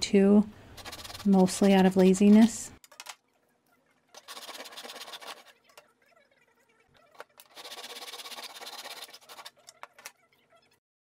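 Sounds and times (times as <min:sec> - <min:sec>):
hand saw sawing wood: 0:00.8 - 0:01.8, 0:04.2 - 0:05.4, 0:07.6 - 0:09.5.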